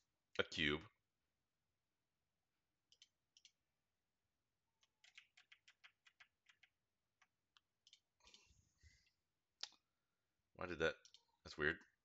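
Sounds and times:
computer mouse and keyboard clicks: 4.8s - 8.5s.

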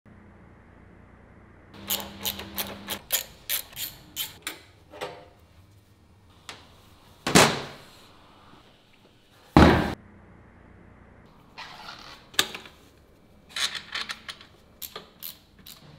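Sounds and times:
metal parts clicking and knocking: 1.8s - 4.6s, 13.5s - 15.9s.

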